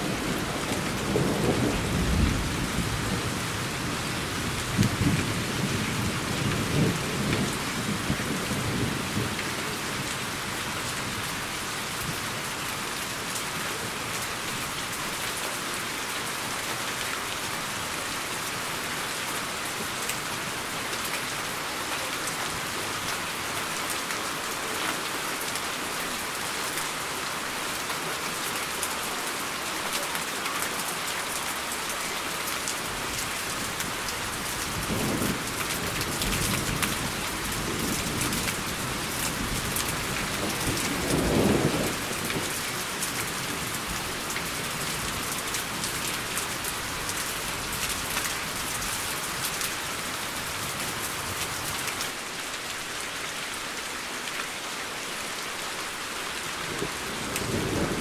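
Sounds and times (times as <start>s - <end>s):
thunder rumbling: 0.0s - 3.6s
rain hiss: 0.0s - 58.0s.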